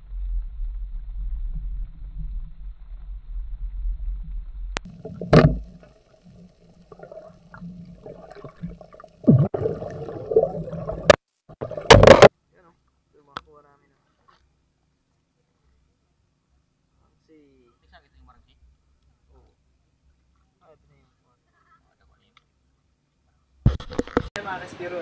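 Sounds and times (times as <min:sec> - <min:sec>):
underwater rumbling: 0:00.0 - 0:12.3
water gurgling and bubbling: 0:00.0 - 0:12.3.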